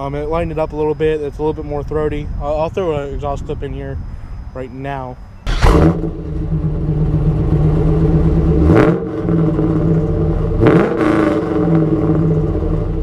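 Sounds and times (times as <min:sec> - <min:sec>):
car engine idling: 0:05.5 - 0:13.0
engine revving: 0:05.5 - 0:13.0.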